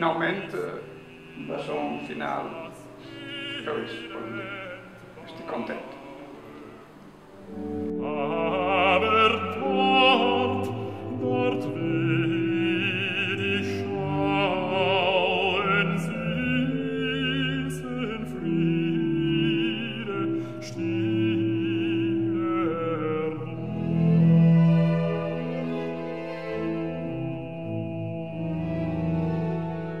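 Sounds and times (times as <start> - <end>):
operatic singing with vibrato: 0.0 - 30.0
sustained orchestral notes: 0.0 - 30.0.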